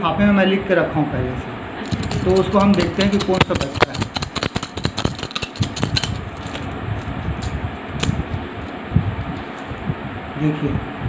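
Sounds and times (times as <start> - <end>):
coins clinking: 1.9 - 8.2, 9.4 - 9.8.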